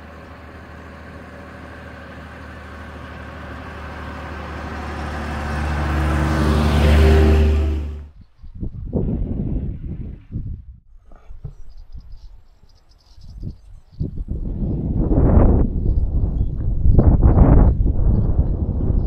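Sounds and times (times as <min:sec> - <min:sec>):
bus diesel engine passing by: 0:00.0 - 0:08.2.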